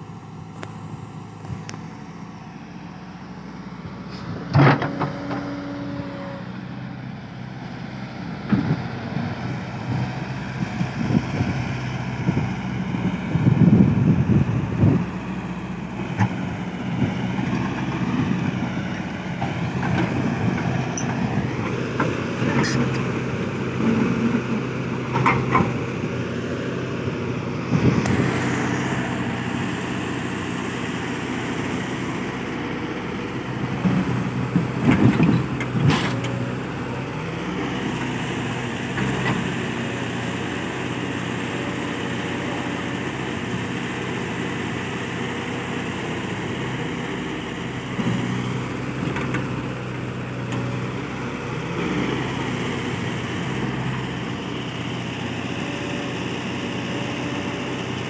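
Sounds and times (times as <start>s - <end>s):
excavator diesel engine running: 0.0s - 58.0s
excavator clattering: 4.5s - 5.9s, 16.2s - 25.9s, 33.7s - 36.7s.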